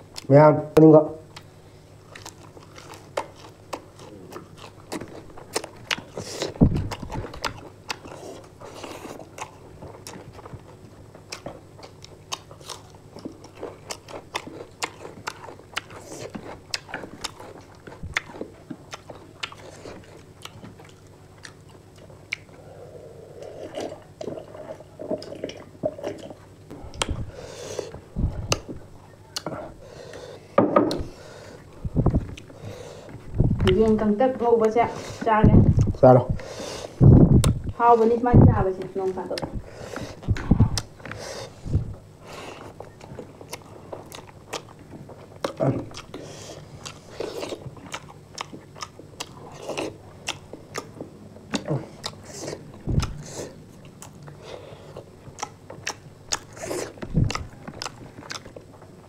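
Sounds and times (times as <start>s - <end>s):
chewing and crunching: 1.2s - 59.0s
low thumps: 37.0s - 37.5s.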